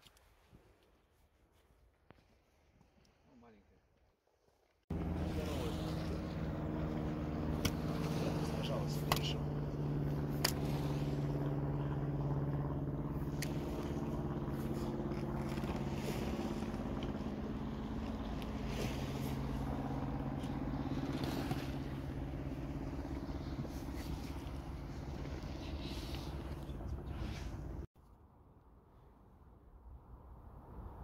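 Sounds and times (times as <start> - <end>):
motor engine humming: 4.9 - 27.9.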